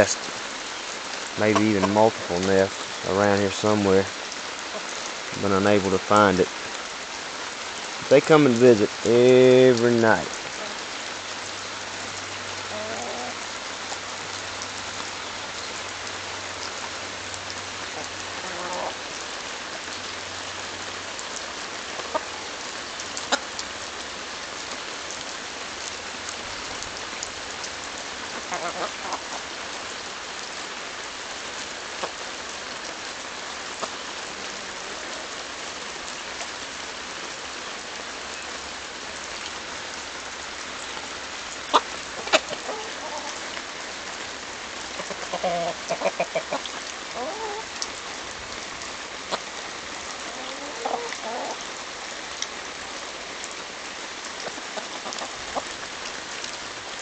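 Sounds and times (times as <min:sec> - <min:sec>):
light rain hiss: 0:00.0 - 0:57.0
chickens clucking softly: 0:28.3 - 0:29.6, 0:41.7 - 0:43.5, 0:45.0 - 0:47.7, 0:50.2 - 0:51.6, 0:54.4 - 0:55.7
chickens pecking corn cob: 0:41.7 - 0:43.3, 0:45.0 - 0:47.6, 0:54.4 - 0:55.7.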